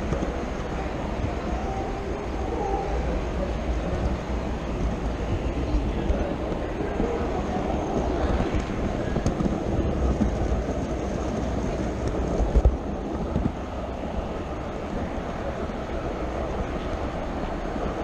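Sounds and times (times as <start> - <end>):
sharp clicks on track: 7.9 - 10.5.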